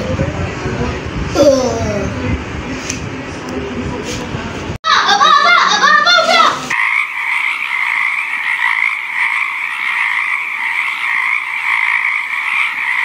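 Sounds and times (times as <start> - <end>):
child shouting excitedly: 4.9 - 6.7
frogs croaking chorus: 6.7 - 13.0.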